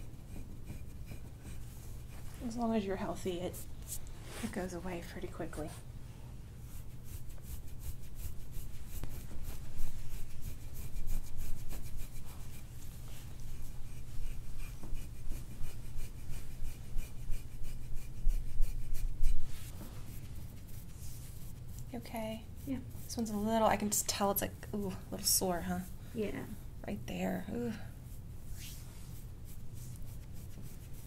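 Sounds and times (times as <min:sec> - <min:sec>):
low steady hum: 0:00.0 - 0:31.0.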